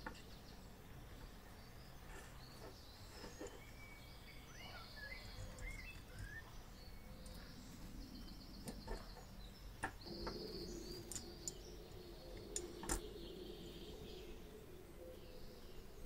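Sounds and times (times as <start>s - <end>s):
birds chirping: 0.0s - 16.0s
small metal clicks: 11.0s - 11.6s.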